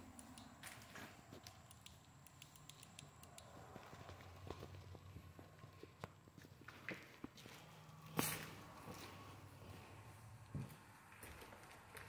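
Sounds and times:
small ticks and clicks: 0.0 - 5.1.

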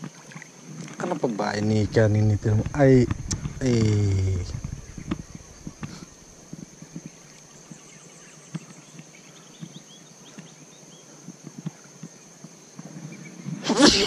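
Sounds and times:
high-pitched insect drone: 1.0 - 7.4
faint ticks: 11.2 - 13.1.

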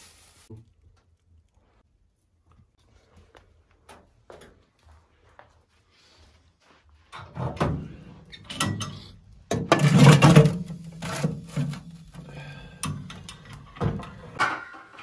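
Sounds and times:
objects knocking and clattering: 7.2 - 15.0.

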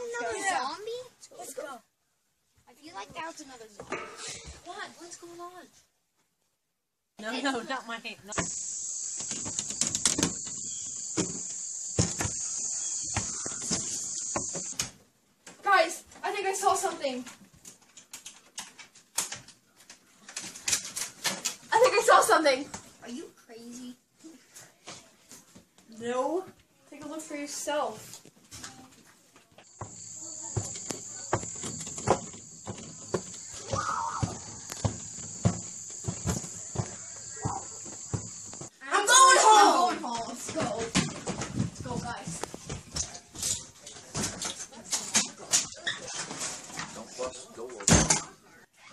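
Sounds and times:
high-pitched hiss: 8.3 - 14.9, 29.7 - 38.7.

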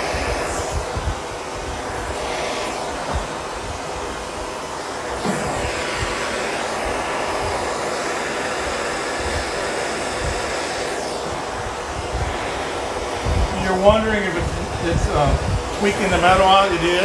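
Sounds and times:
gas torch hissing: 0.0 - 17.0.

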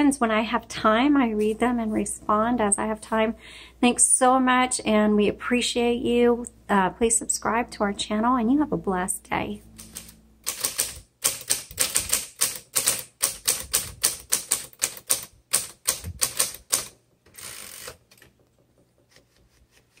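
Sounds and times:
typewriter carriage return rasp: 9.8 - 18.3
manual typewriter typing: 9.8 - 18.5.

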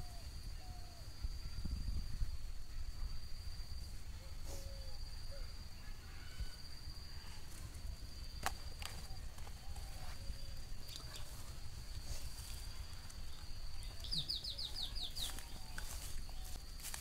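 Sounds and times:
high-pitched insect trill: 0.0 - 17.0
short bird calls: 13.8 - 16.5.

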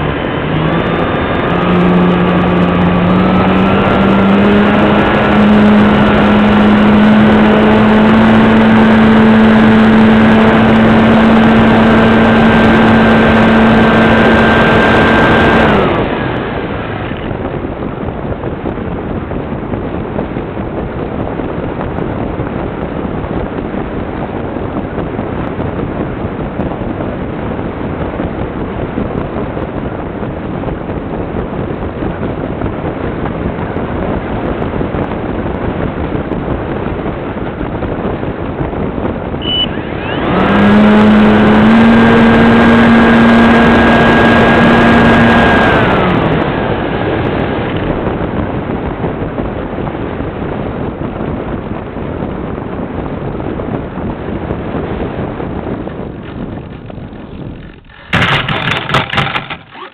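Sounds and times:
model plane motor whining: 39.4 - 43.6, 56.2 - 59.9.

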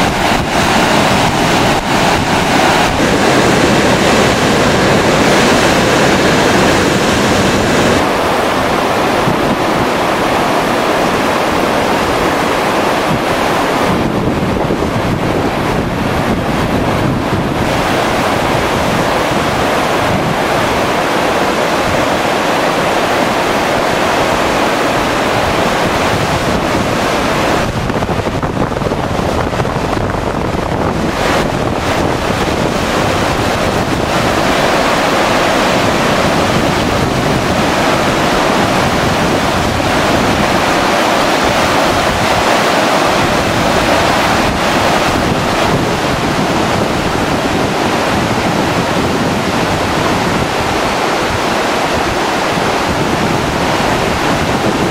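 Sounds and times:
floodwater rushing: 0.0 - 54.9.

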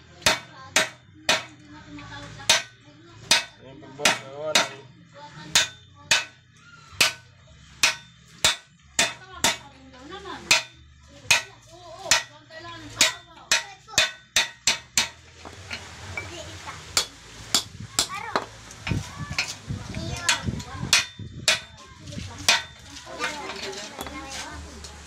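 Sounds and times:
hammer striking metal: 0.2 - 1.6, 2.4 - 4.9, 5.5 - 6.4, 7.0 - 9.7, 10.4 - 12.4, 13.0 - 15.2, 20.3 - 21.8, 22.5 - 22.8.

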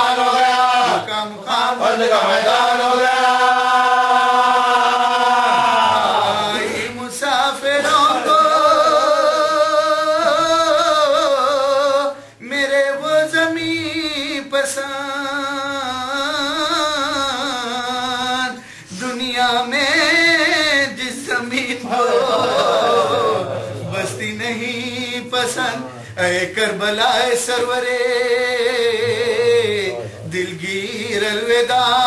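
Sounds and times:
man chanting mournfully: 4.0 - 32.0.

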